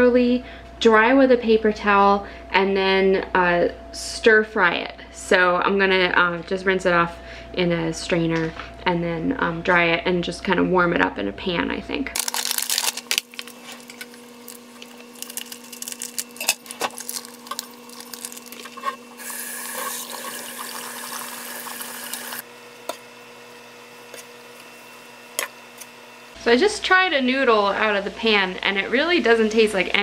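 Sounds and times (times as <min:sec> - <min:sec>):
faint hum: 0:00.0 - 0:30.0
plastic bag rustling: 0:12.2 - 0:20.0
kitchen tap running: 0:17.5 - 0:22.4.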